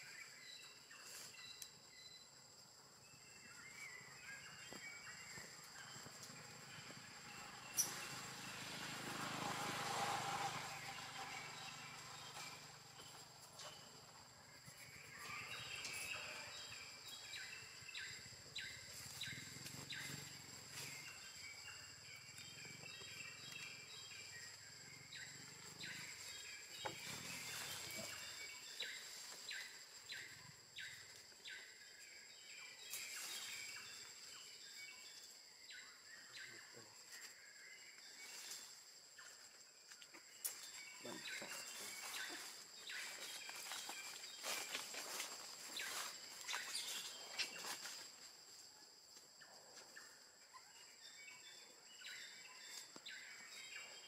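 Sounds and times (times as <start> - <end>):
insects buzzing: 0.0 - 54.0
bird chirps: 40.4 - 47.8.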